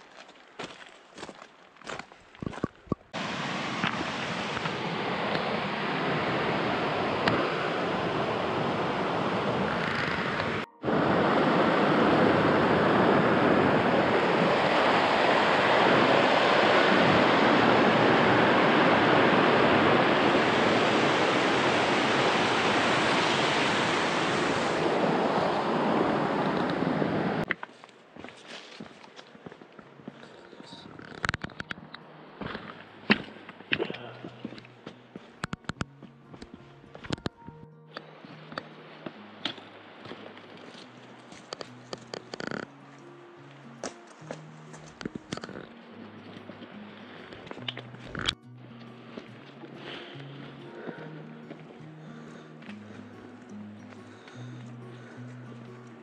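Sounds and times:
wind blowing on microphone: 2.4s - 27.5s.

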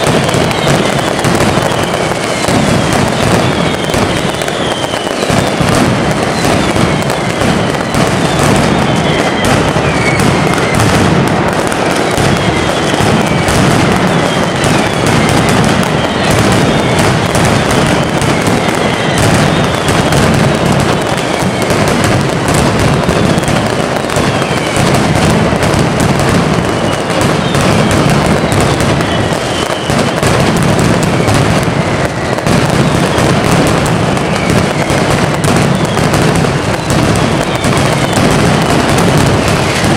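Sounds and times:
high falling whistles: 0.0s - 5.6s, 6.2s - 11.0s
firecrackers bursting rapidly: 0.0s - 39.9s.

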